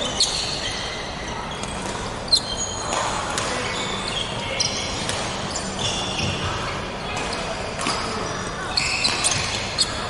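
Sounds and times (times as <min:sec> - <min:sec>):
athletic shoes squeaking on floor: 0:08.7 - 0:10.0.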